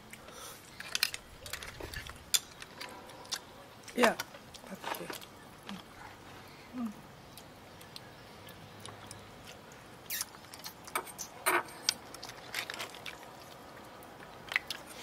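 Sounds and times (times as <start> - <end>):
chewing: 7.3 - 15.0.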